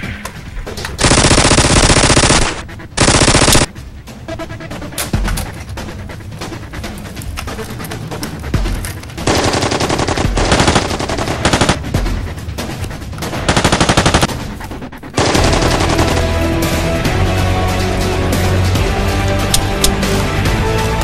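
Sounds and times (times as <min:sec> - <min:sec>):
machine-gun fire: 0:01.0 - 0:03.7, 0:09.3 - 0:11.9, 0:13.3 - 0:14.3, 0:15.2 - 0:16.5.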